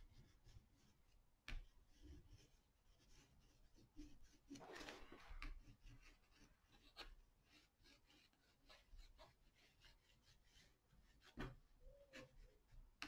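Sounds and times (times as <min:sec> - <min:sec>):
oil pastel scratching on paper: 0:00.0 - 0:13.0.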